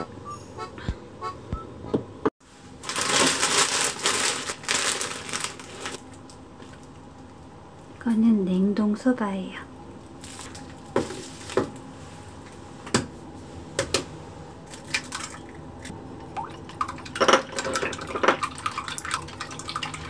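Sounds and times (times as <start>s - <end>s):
water dripping and splashing: 14.8s - 15.6s, 16.2s - 20.0s.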